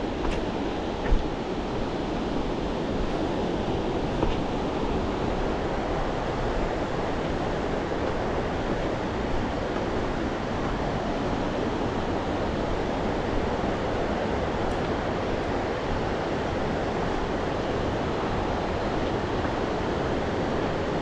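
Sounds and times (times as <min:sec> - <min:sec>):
fast-flowing river rushing: 0:00.0 - 0:21.0.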